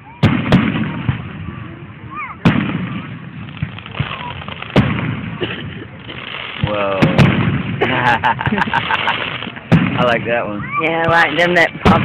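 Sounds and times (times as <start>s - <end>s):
firework shells bursting: 2.4s - 12.0s.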